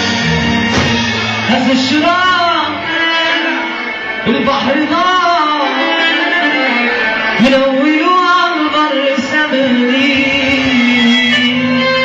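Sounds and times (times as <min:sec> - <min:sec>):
live instrumental accompaniment: 0:00.0 - 0:12.0
man singing ornamented phrases: 0:07.4 - 0:11.8.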